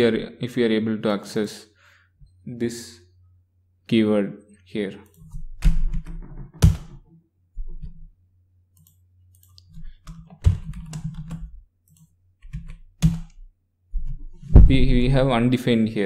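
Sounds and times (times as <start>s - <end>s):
computer keyboard keystrokes: 8.8s - 13.4s.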